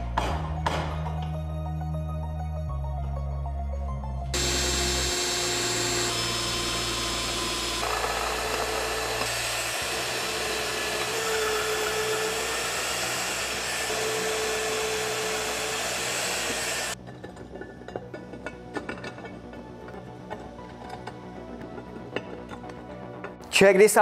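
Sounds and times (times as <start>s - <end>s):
magnetic drill boring steel: 4.4s - 17.0s.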